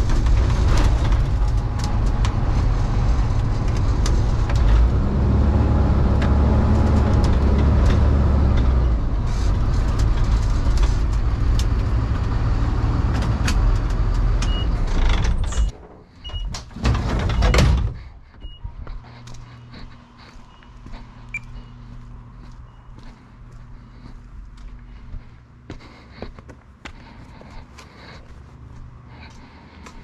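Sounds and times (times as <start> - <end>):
clatter: 0.0 - 15.8
van engine running and rattling: 0.0 - 30.0.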